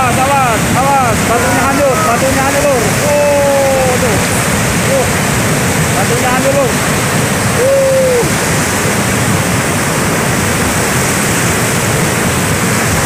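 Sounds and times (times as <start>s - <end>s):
mud flood rushing: 0.0s - 13.0s
person shouting: 1.0s - 4.2s, 7.6s - 8.3s.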